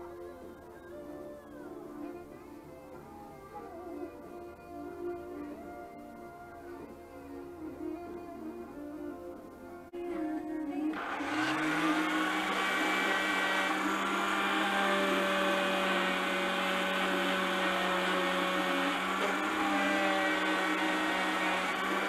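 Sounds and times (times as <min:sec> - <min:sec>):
electric sander sanding wood: 0:10.9 - 0:22.0.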